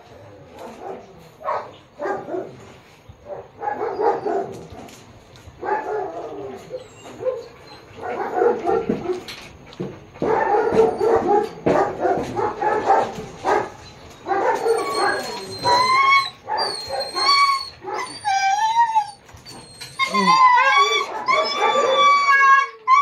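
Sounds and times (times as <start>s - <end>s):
dog whining and yipping: 6.4s - 8.2s, 10.3s - 11.6s, 13.8s - 23.0s.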